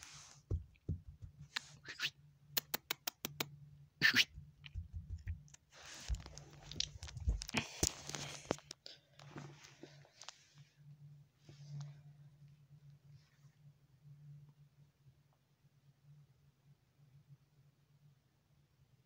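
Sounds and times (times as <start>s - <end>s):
sharp clicks: 2.6s - 3.5s.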